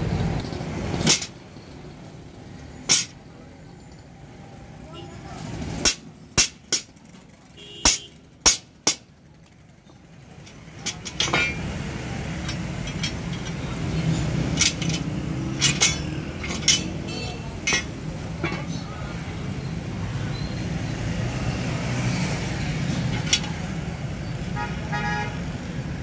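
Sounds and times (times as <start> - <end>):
metal leaf springs clinking: 0.6 - 1.5, 2.8 - 4.2, 10.2 - 23.9.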